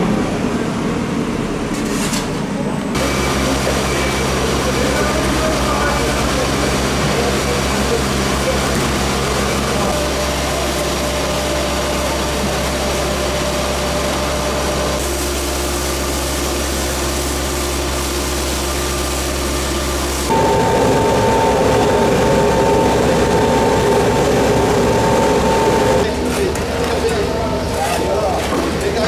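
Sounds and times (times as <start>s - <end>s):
steady whine: 18.1s - 26.1s
motor running: 19.6s - 26.1s.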